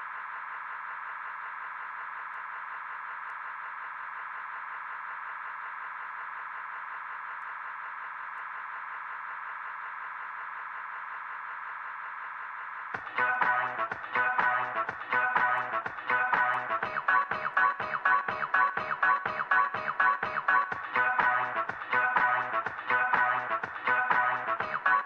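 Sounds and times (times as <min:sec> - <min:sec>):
dance music: 0:13.0 - 0:25.0.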